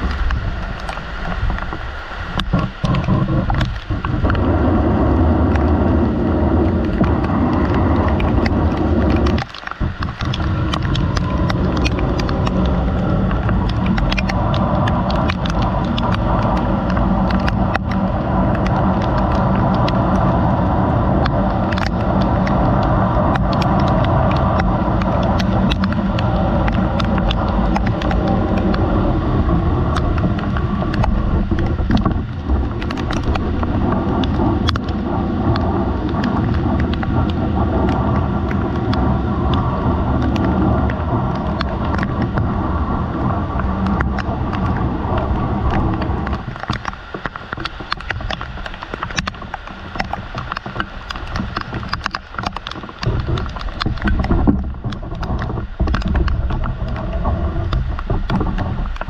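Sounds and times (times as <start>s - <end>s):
rain on a metal roof: 0.0s - 59.0s.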